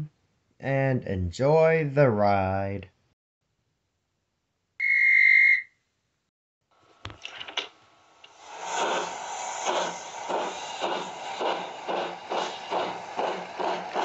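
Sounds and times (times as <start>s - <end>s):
steam locomotive chuffing: 8.4s - 14.0s.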